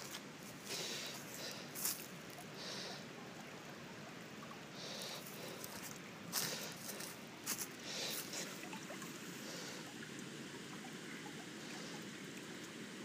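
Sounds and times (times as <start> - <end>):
water flowing through a pipe: 0.0 - 13.0
short breaths: 0.6 - 1.9, 2.6 - 3.1, 7.8 - 8.7.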